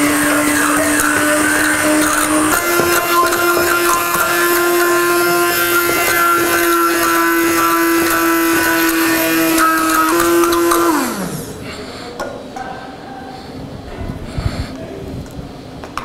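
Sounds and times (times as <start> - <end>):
hand blender motor whining: 0.0 - 11.6.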